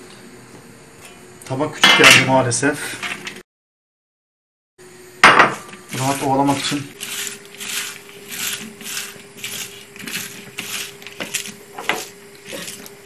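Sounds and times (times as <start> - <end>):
hand squeezing sliced onions: 5.9 - 13.0.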